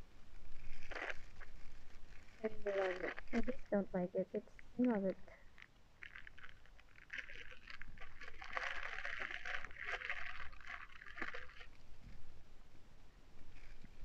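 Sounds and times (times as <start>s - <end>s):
plastic bags crinkling: 0.5s - 3.8s, 4.8s - 11.8s.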